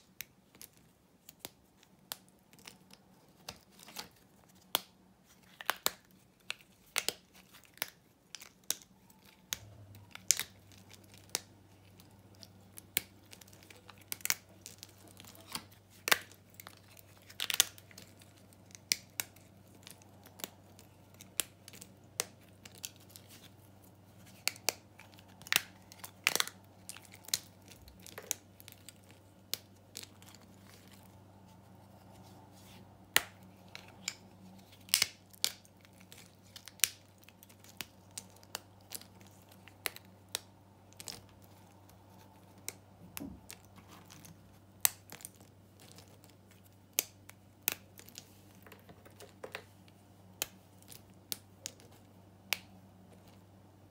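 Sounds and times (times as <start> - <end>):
soap snapping with crisp cracks: 0.1 - 31.1, 33.1 - 49.6, 50.4 - 53.4
soap chips crumbling: 0.2 - 31.3, 33.1 - 49.7, 50.3 - 53.4.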